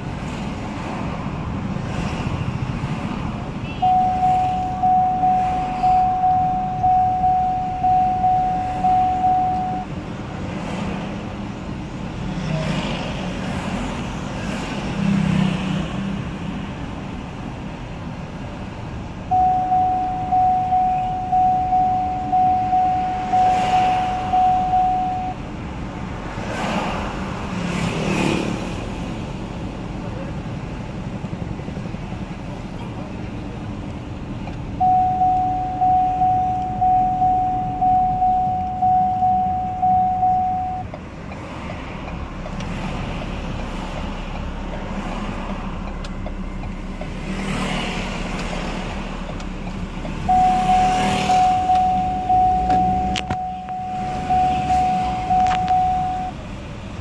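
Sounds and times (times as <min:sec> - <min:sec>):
road noise inside car: 0:00.0 - 0:57.0
electronic chime beeps: 0:03.8 - 0:09.9, 0:19.3 - 0:25.4, 0:34.8 - 0:40.9, 0:50.3 - 0:56.3.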